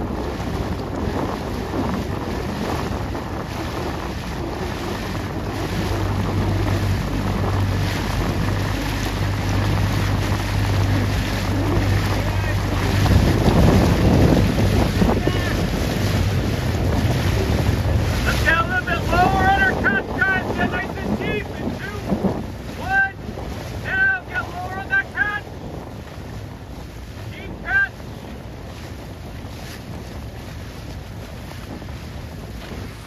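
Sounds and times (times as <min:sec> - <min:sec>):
paddles splashing: 0:00.0 - 0:33.0
water rushing past hull: 0:00.0 - 0:33.0
wind buffeting microphone: 0:00.0 - 0:33.0
person calling out: 0:22.8 - 0:23.2, 0:27.4 - 0:28.0.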